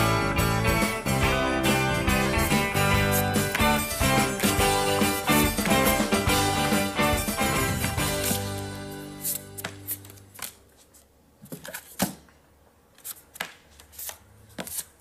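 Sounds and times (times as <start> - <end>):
background music with held notes: 0.0 - 10.1
playing cards tapping on a table: 9.6 - 10.6.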